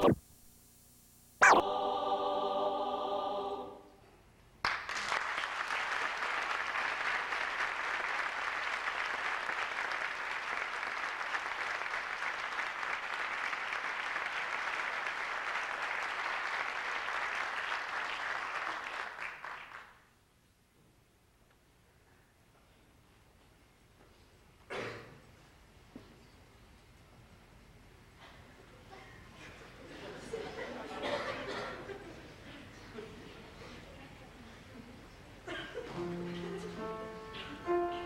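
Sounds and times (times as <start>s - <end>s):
choir holding a chord: 1.6s - 4.0s
audience applause: 4.6s - 20.0s.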